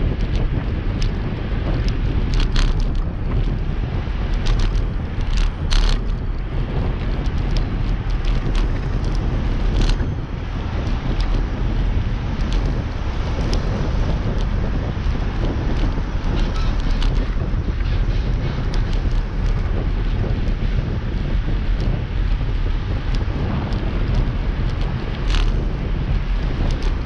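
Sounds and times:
bike clicks and rattles: 0:00.0 - 0:27.0
wind buffeting microphone: 0:00.0 - 0:27.0.

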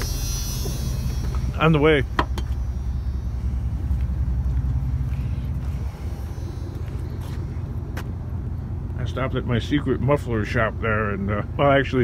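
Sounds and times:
truck engine low rumble: 0:00.0 - 0:12.0.

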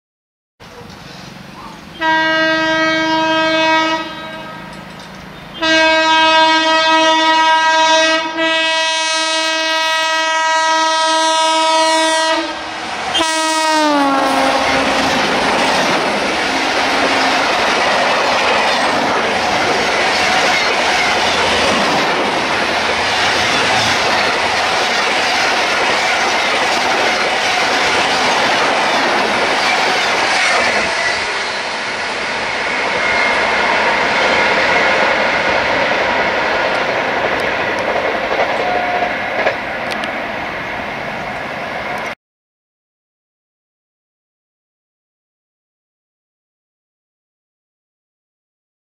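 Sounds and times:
train rushing past: 0:00.6 - 0:09.3, 0:09.9 - 0:42.2
locomotive horn blasts: 0:02.0 - 0:04.8, 0:05.6 - 0:15.2.

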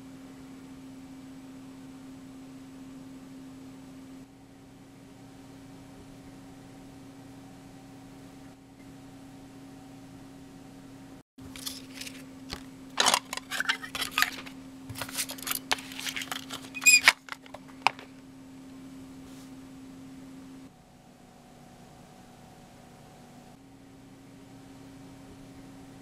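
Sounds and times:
paper rustling: 0:11.5 - 0:18.2
plastic cassette case clicks: 0:11.6 - 0:18.1.

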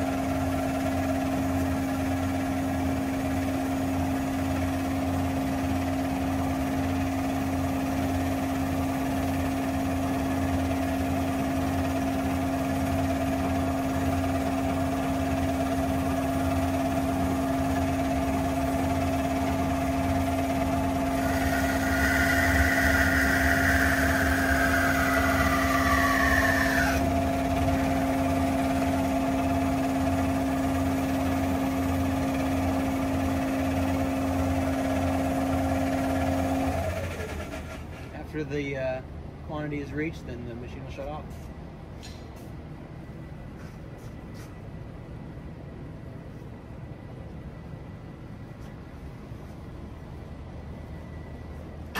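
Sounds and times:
bandsaw humming: 0:19.5 - 0:31.0
hiss: 0:21.2 - 0:27.0
high whine falling in pitch: 0:21.2 - 0:27.8.

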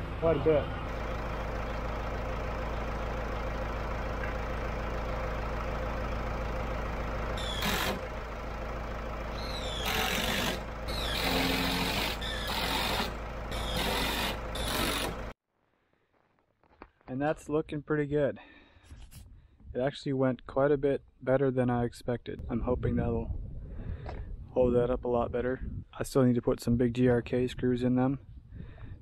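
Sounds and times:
tractor engine idling: 0:00.0 - 0:15.4
drill driving screws into timber: 0:07.4 - 0:08.0, 0:09.5 - 0:15.2.

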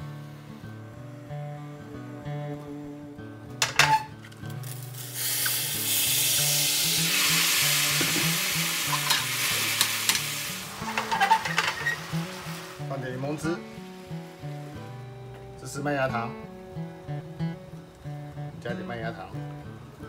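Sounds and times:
fruit sizzling in hot caramel: 0:04.1 - 0:15.6.

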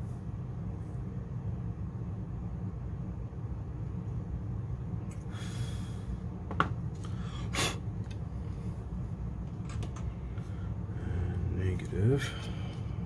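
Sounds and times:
steady low hum: 0:00.0 - 0:13.0
short hissing breaths: 0:05.3 - 0:06.2.

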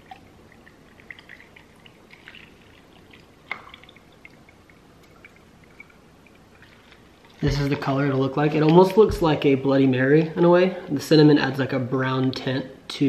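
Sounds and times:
liquid trickling into glass: 0:00.0 - 0:07.4.

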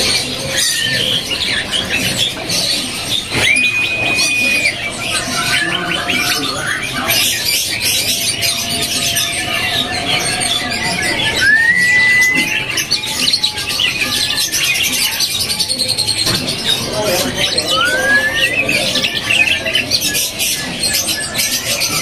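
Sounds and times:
caged songbirds chirping: 0:00.0 - 0:22.0
bird whistle rising: 0:03.4 - 0:04.9, 0:11.2 - 0:12.7, 0:17.5 - 0:19.0.

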